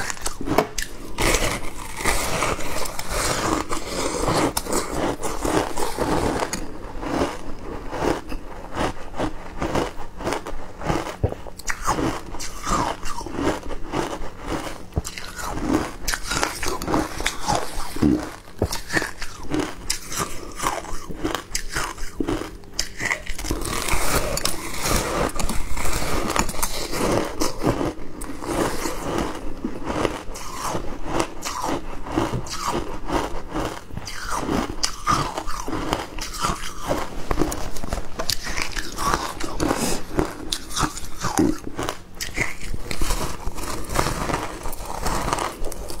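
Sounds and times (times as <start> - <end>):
ice crunching while chewed: 0.0 - 46.0.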